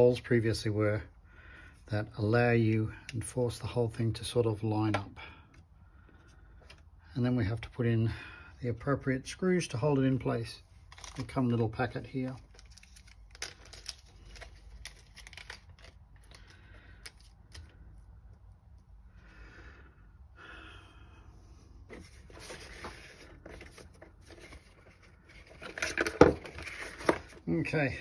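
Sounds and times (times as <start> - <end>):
plastic packet tearing and crinkling: 10.8 - 17.7.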